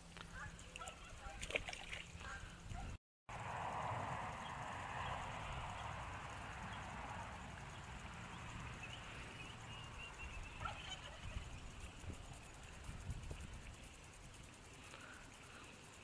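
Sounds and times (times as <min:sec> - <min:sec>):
wind rumbling on microphone: 0:10.1 - 0:14.3.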